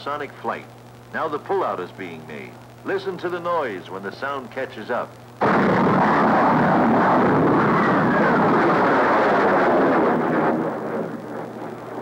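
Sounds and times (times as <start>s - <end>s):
jet fighter roar: 5.4s - 12.0s.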